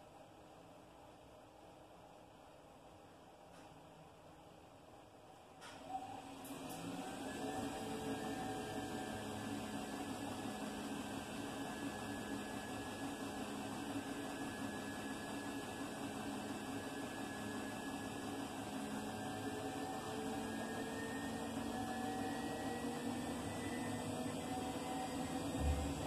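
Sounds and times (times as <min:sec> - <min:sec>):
washing machine motor hum: 0:05.8 - 0:26.0.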